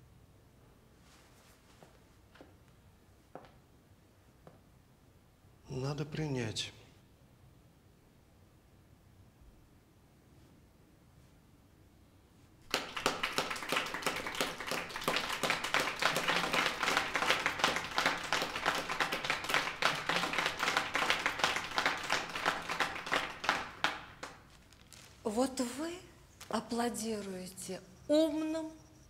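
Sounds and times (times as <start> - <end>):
people clapping: 12.6 - 25.1.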